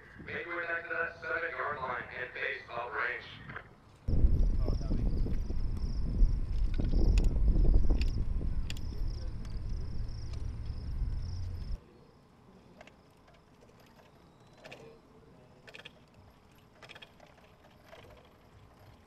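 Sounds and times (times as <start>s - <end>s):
rolling collector rumble: 4.1s - 11.8s.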